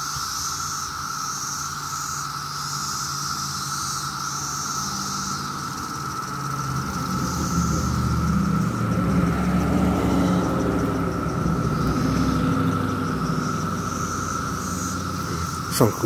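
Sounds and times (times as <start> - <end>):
cicadas droning: 0.0 - 16.0
car driving past: 5.1 - 16.0.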